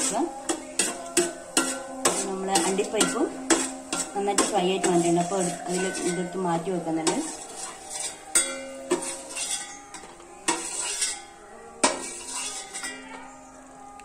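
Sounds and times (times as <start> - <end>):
metal spoon scraping a steel pan: 0.0 - 13.4.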